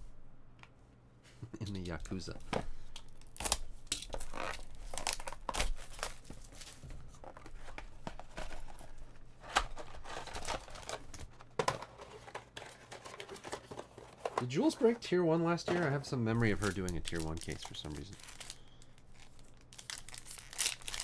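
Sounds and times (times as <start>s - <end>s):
plastic wrap crinkling and tearing: 2.9s - 11.6s, 16.3s - 21.0s
cardboard rustling: 4.2s - 14.9s.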